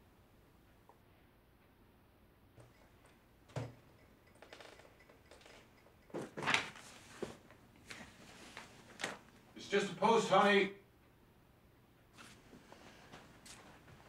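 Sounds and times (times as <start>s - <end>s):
rustling and clattering handling: 5.4s - 9.4s.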